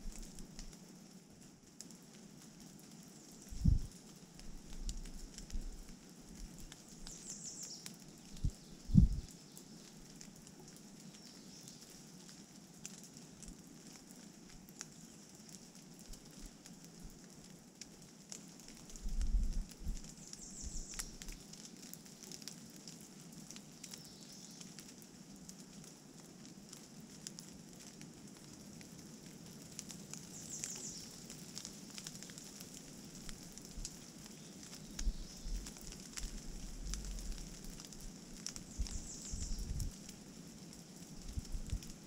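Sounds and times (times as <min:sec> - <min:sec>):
rain pattering on leaves: 0:00.0 - 0:42.0
wind buffeting microphone: 0:03.5 - 0:03.9, 0:08.4 - 0:09.3, 0:38.8 - 0:40.0, 0:41.2 - 0:41.9.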